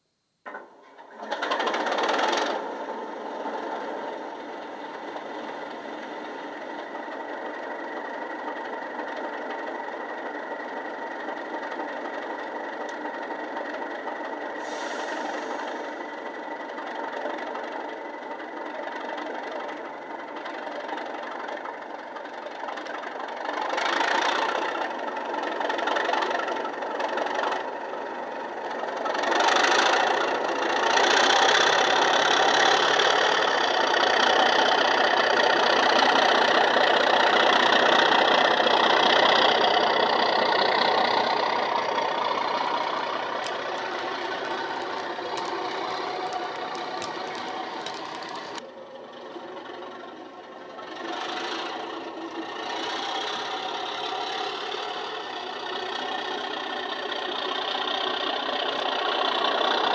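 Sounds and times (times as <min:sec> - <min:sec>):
diesel locomotive engine: 0:00.0 - 0:59.9
short hiss: 0:14.6 - 0:15.9.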